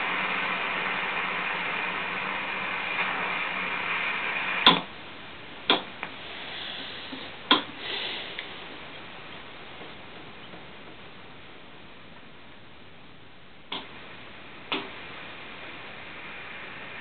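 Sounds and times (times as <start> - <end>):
shortwave static: 0.0 - 17.0
receiver tuning clicks: 4.5 - 4.9, 13.7 - 14.0, 14.6 - 15.0.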